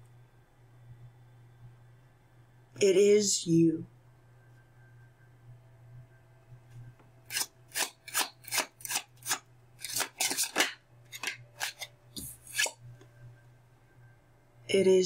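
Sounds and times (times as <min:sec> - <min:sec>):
cards being shuffled: 0:07.3 - 0:12.8.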